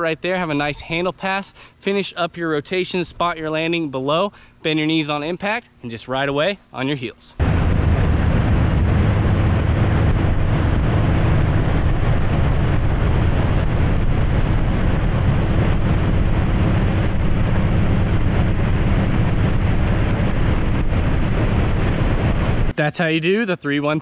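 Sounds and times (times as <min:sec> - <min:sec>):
boat engine droning: 0:07.4 - 0:22.7.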